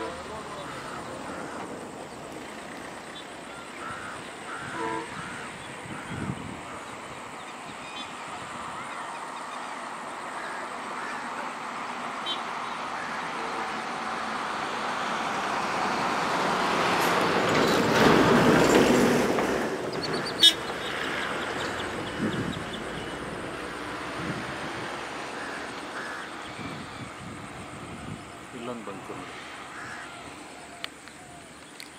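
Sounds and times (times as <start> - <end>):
motor vehicle passing: 10.4 - 30.7.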